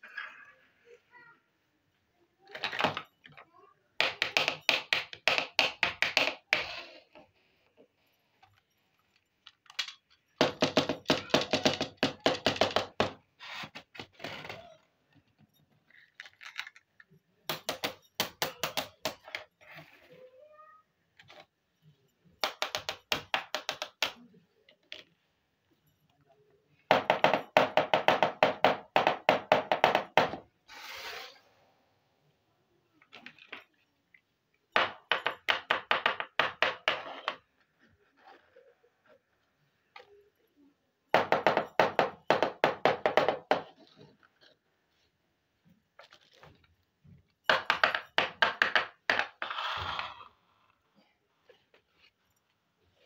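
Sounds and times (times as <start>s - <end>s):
plastic toy pieces clicking: 9.4s - 13.0s, 15.9s - 19.5s.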